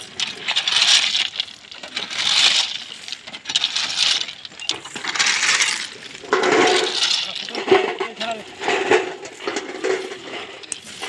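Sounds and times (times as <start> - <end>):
stones clattering under a scraper: 0.0 - 11.0.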